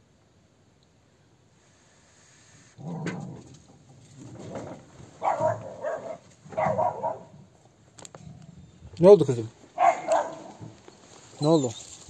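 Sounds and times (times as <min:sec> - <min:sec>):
dog barking: 0:05.2 - 0:07.3, 0:09.8 - 0:10.7.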